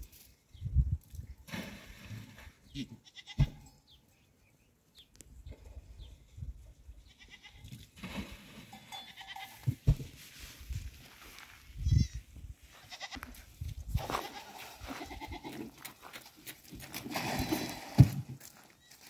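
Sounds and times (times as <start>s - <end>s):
goats bleating: 12.8s - 13.4s, 14.0s - 15.8s.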